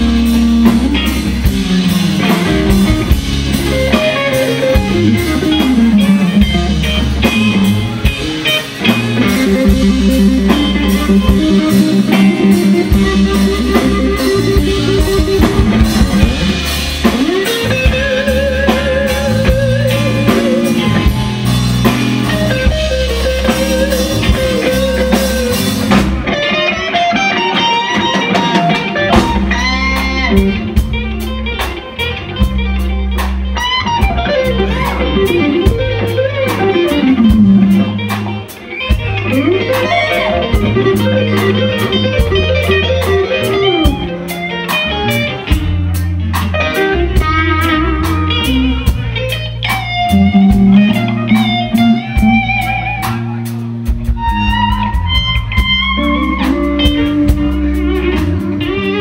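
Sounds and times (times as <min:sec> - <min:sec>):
bass guitar: 0:00.0 - 0:59.0
drum kit: 0:00.0 - 0:59.0
electric guitar lead: 0:00.0 - 0:59.0.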